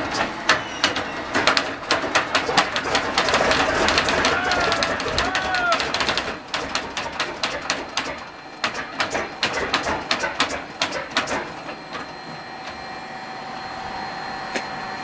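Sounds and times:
engine turning over knocking: 0:00.0 - 0:11.5
steady high whine: 0:00.0 - 0:15.0.

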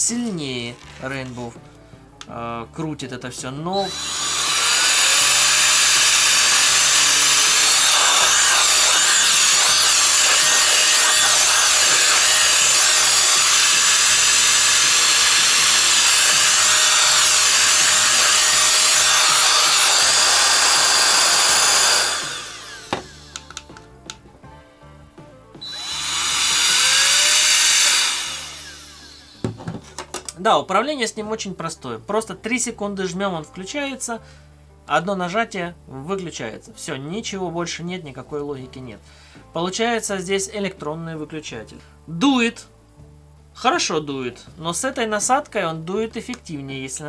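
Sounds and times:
electric air duster blowing: 0:03.8 - 0:23.8, 0:25.6 - 0:29.8.

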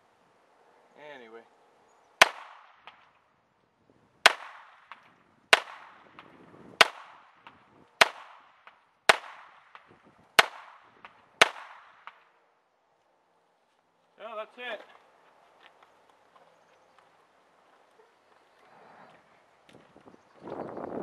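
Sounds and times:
pistol shots: 0:02.2 - 0:03.1, 0:04.2 - 0:12.3.

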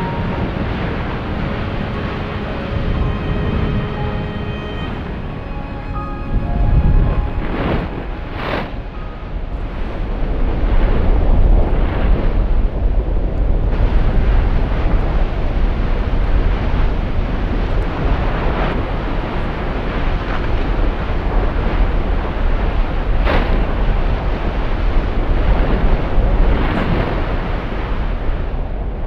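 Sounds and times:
lava lake rumbling: 0:00.0 - 0:03.9, 0:06.3 - 0:29.0.

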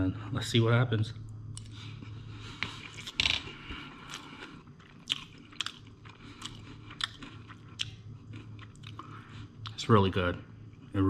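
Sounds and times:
steady low hum: 0:00.0 - 0:11.0
person chewing food: 0:01.5 - 0:09.8
mouth clicks and crunches: 0:02.6 - 0:09.8.

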